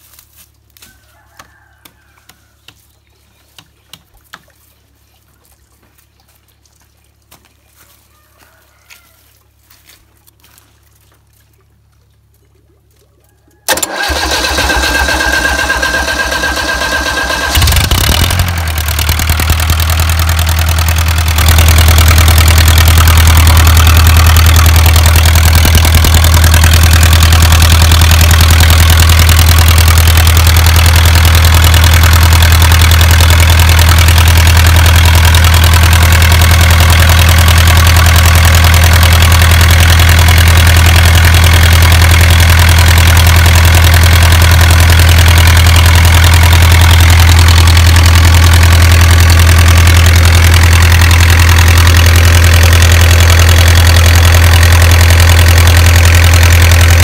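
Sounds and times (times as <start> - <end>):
diesel engine running: 13.7 - 57.0
starter motor cranking: 13.7 - 57.0.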